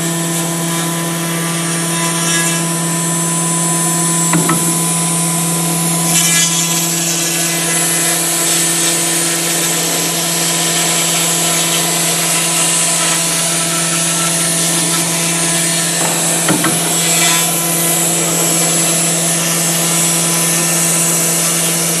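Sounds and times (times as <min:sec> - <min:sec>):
bit milling foam hiss: 0:00.0 - 0:22.0
router spindle hum: 0:00.0 - 0:22.0.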